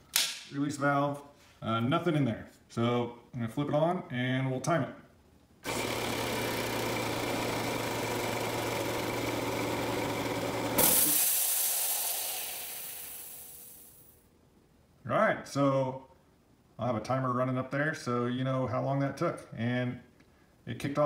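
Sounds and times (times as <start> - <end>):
air compressor humming: 5.6 - 14.0.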